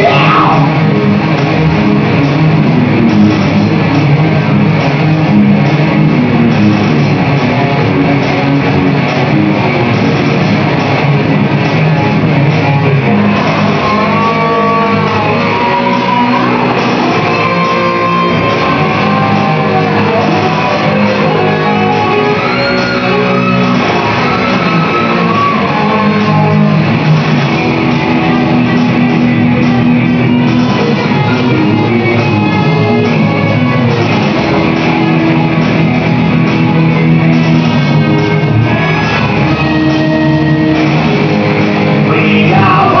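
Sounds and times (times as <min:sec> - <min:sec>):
loud electric guitars: 0:00.0 - 0:43.0.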